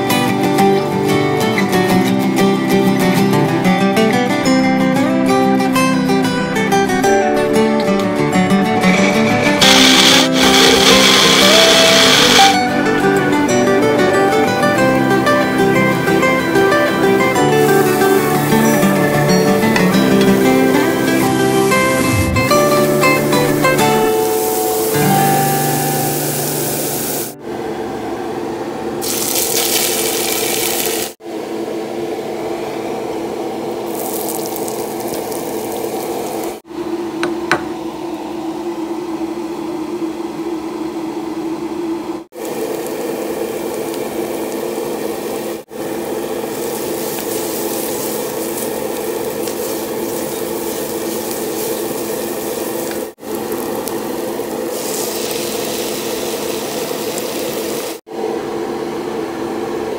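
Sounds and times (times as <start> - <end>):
food sizzling in a pot: 8.9 - 12.6, 15.1 - 27.4, 29.0 - 31.2, 33.9 - 36.6, 42.4 - 58.0.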